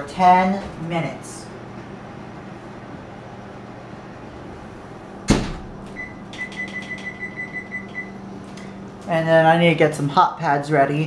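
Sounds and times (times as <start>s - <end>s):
steady low hum: 0.0s - 11.0s
oven door banging shut: 5.2s - 5.8s.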